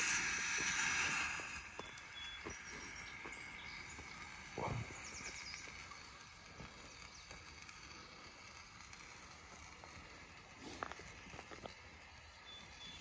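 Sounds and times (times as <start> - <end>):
campfire crackling and popping: 0.0 - 13.0.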